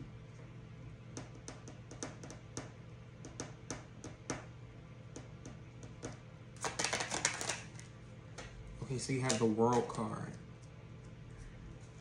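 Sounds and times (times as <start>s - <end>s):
cards shuffling: 6.6s - 7.9s.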